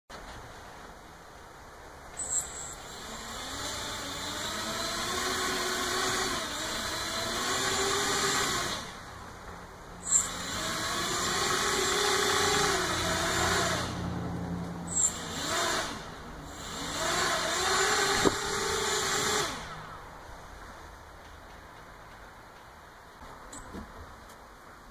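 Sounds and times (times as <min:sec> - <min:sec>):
drone motors whining: 0:02.2 - 0:09.0, 0:10.0 - 0:20.1.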